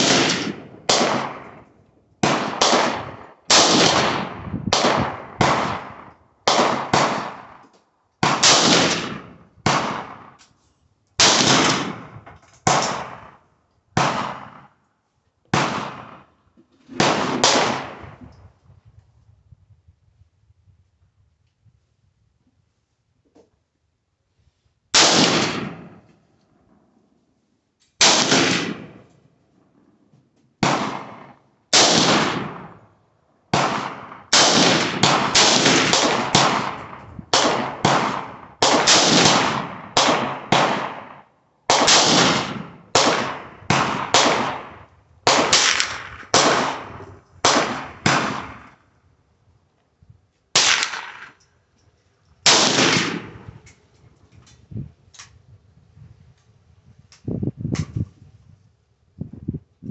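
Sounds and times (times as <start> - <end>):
rifle shots with echo: 0.0 - 7.6, 8.2 - 10.4, 11.2 - 14.8, 15.5 - 18.2, 24.9 - 26.8, 28.0 - 29.1, 30.6 - 32.9, 33.5 - 49.0, 50.5 - 51.4, 52.4 - 53.6.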